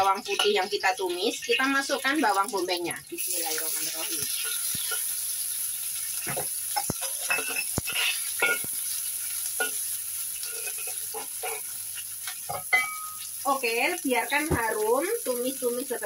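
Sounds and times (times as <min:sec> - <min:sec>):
onion sizzling in hot oil: 0:00.0 - 0:16.0
metal spatula scraping wok: 0:03.9 - 0:05.3, 0:06.3 - 0:13.2.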